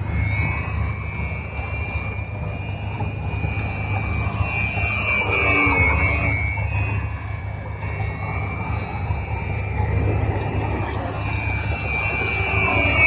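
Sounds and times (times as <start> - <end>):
model plane motor whining: 3.0 - 7.1.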